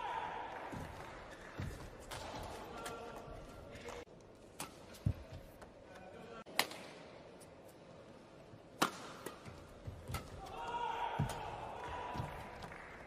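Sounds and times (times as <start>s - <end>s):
indoor hall ambience: 0.0s - 13.0s
rackets striking shuttlecock: 4.5s - 5.4s, 8.8s - 10.6s.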